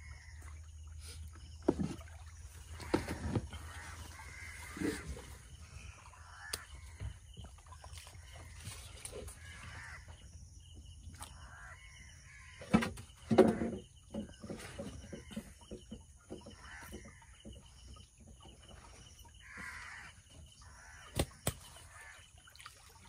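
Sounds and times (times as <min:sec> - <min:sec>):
crows cawing: 0:02.8 - 0:07.2, 0:09.3 - 0:10.2, 0:11.4 - 0:12.8, 0:16.5 - 0:17.4, 0:19.4 - 0:22.3.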